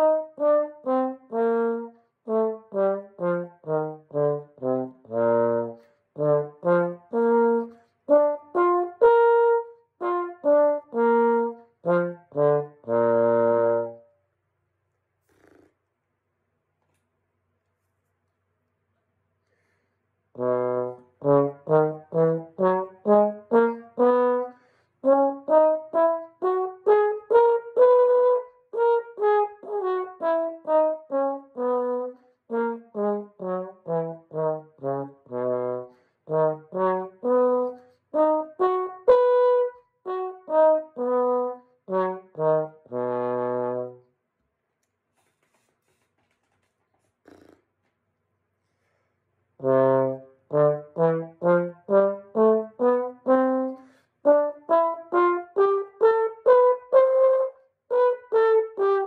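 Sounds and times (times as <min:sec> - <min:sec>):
trombone playing scales: 0:00.0 - 0:14.0, 0:20.3 - 0:44.0, 0:49.6 - 0:59.0.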